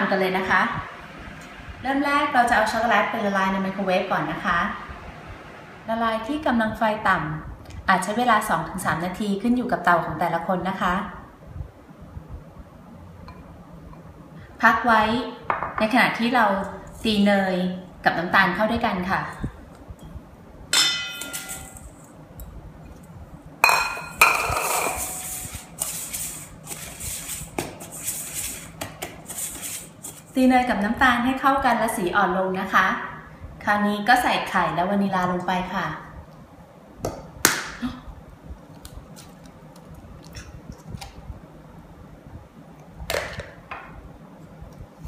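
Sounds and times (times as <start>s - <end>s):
whisk scraping round bowl: 24.6s - 30.4s.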